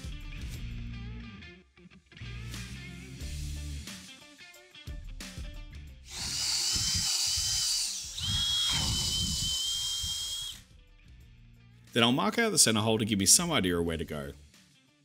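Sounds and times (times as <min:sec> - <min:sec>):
power drill whining: 0:06.1 - 0:10.6.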